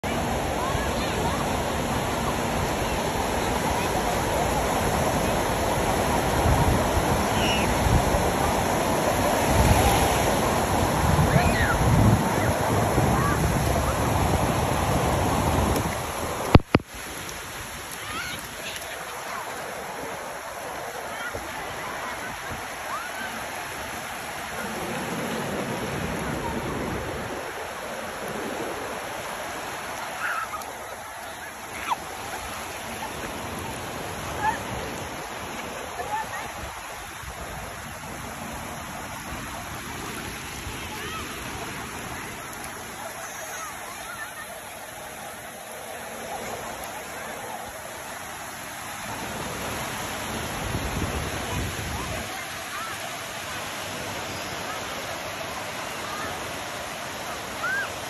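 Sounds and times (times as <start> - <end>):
wind gusting on microphone: 0.0 - 18.5, 21.2 - 29.7, 49.1 - 52.3
sea surf washing onto beach: 0.0 - 58.0.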